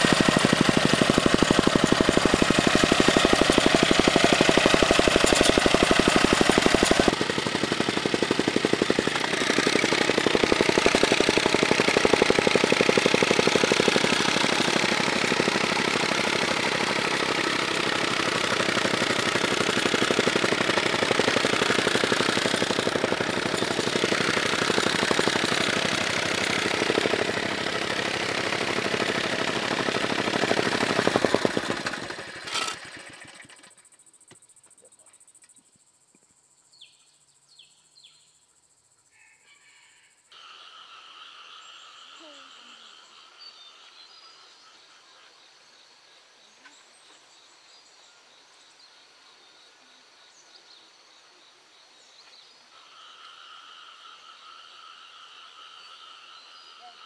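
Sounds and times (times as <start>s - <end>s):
soil compactor pounding: 0.0s - 33.8s
insects buzzing: 1.2s - 57.0s.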